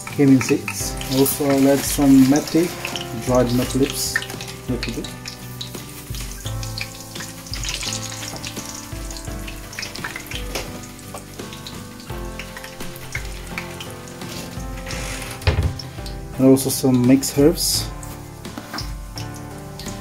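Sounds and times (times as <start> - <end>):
oil sizzling in pot: 0.0 - 20.0
music with pulsing bass: 2.9 - 11.0, 13.2 - 16.5.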